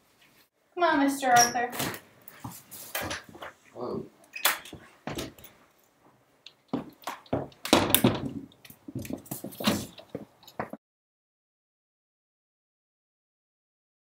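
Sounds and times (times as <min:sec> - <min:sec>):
door knocks and thunks: 0:06.8 - 0:08.5.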